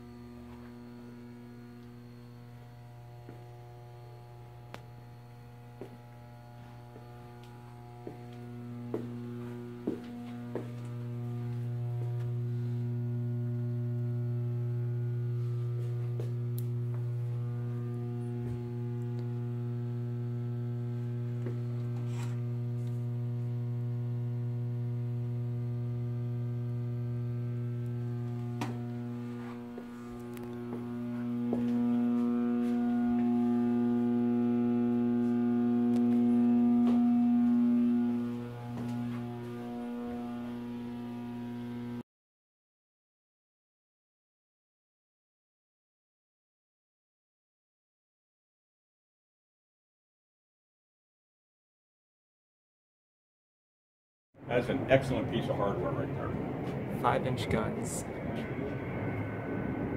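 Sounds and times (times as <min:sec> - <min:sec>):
low electrical hum: 0:00.0 - 0:42.0, 0:54.4 - 0:59.9.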